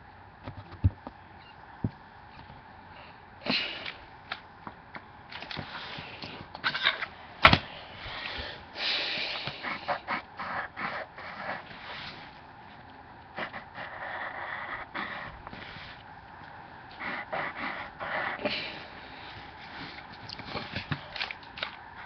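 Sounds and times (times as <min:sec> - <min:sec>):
pencil scratching on paper: 0:09.5 - 0:12.2, 0:13.4 - 0:16.0, 0:17.0 - 0:18.5.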